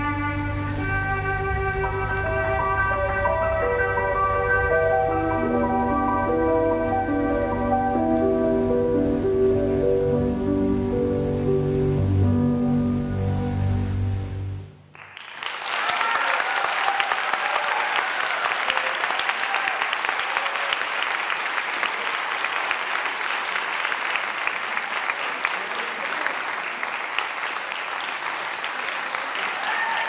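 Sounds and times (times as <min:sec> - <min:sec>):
dance music low notes: 0:00.0 - 0:14.8
audience applauding: 0:14.9 - 0:30.0.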